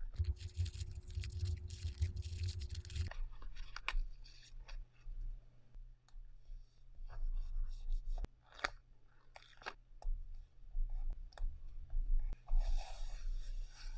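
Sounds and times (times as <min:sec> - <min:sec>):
paper crinkling and rustling: 0:00.2 - 0:04.8.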